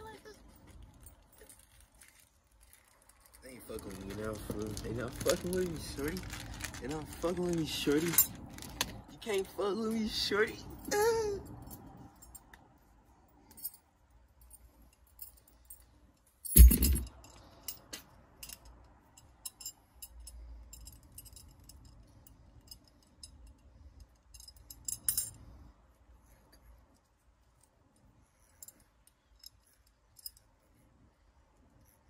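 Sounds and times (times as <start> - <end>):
metal belt buckle clinking: 13.3 - 25.4, 28.4 - 30.7
buckle clattering rattle: 16.4 - 25.4.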